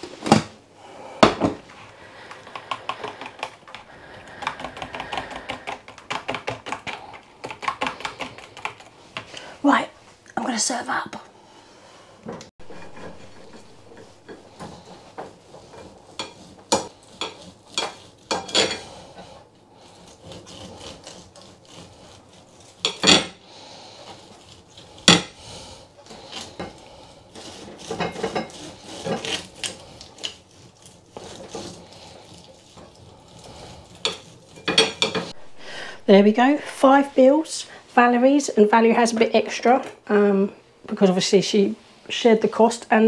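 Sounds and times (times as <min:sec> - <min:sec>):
knife sawing through meat: 0:15.8 - 0:35.5.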